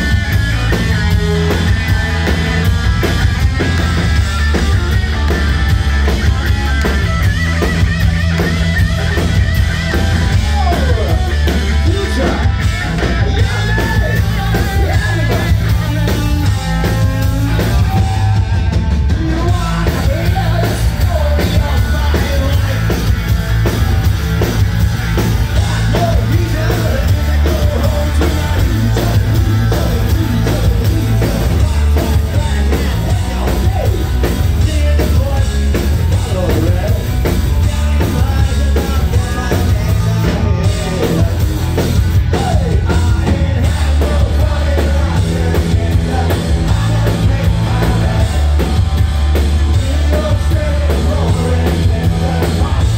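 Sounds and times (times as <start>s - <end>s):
live punk rock band: 0.0s - 52.9s
person singing: 25.5s - 52.9s.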